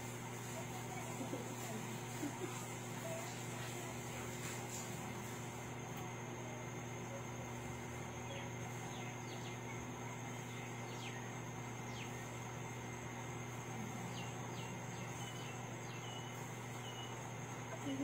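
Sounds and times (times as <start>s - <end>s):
high insect tone: 0.0s - 18.0s
low steady hum: 0.0s - 18.0s
birds chirping: 7.6s - 18.0s.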